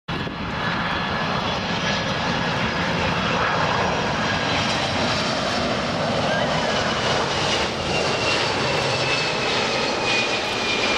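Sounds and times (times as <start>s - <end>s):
jet engines rushing: 0.1s - 10.9s
faint thin engine whine: 0.2s - 10.9s.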